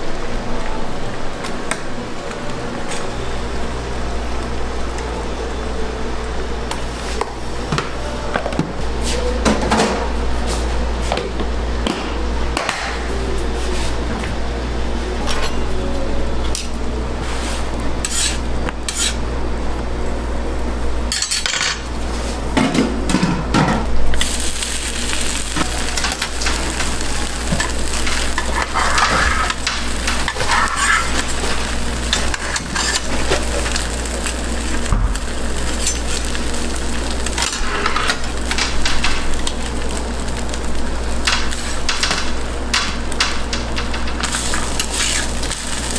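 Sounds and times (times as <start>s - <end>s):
egg sizzling on griddle: 24.2s - 45.9s
metal utensils clinking and scraping: 25.5s - 33.9s, 37.3s - 39.3s.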